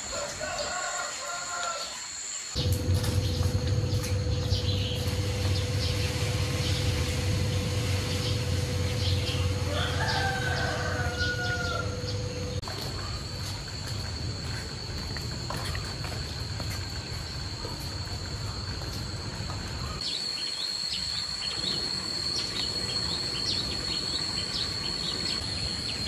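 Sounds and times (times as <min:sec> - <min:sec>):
rooster crowing: 0:00.0 - 0:02.0, 0:09.0 - 0:12.6
steady low rumble: 0:02.6 - 0:20.0.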